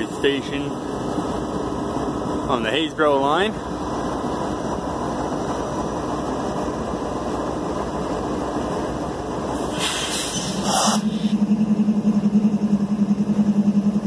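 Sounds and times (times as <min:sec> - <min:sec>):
locomotive engines idling: 0:00.0 - 0:14.0
brief hiss: 0:09.6 - 0:11.3.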